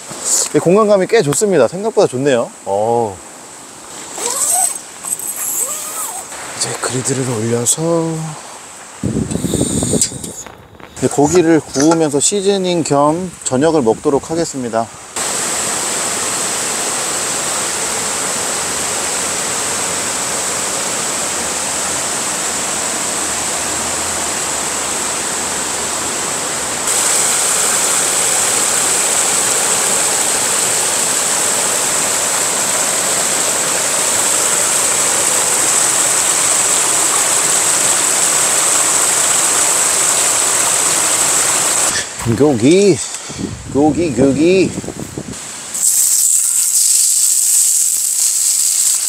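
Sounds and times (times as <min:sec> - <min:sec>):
stream flowing over rocks: 0:00.0 - 0:09.0, 0:15.1 - 0:43.2.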